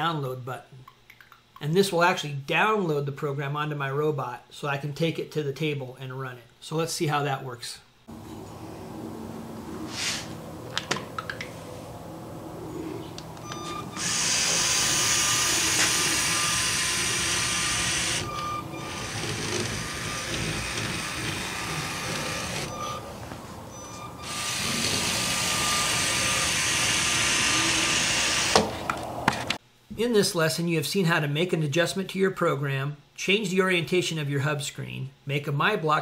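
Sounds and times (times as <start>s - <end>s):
toy motors and plastic gears running: 14.0s - 22.8s, 23.8s - 28.6s.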